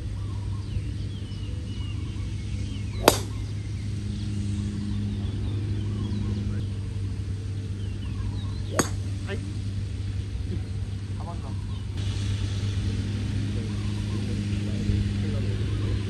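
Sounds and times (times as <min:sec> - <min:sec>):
steady low hum: 0:00.0 - 0:16.0
golf club striking ball: 0:02.9 - 0:03.6, 0:08.6 - 0:09.3.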